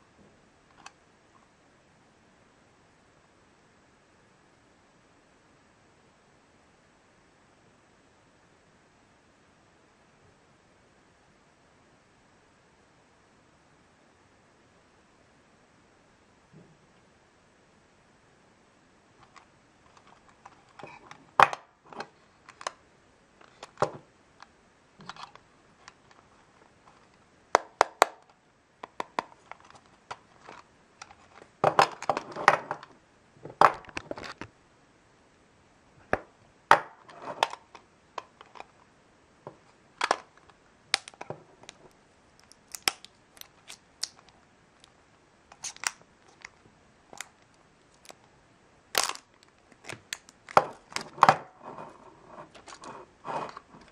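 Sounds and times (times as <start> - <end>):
plastic wrap crinkling: 45.5 - 46.6, 48.9 - 51.2.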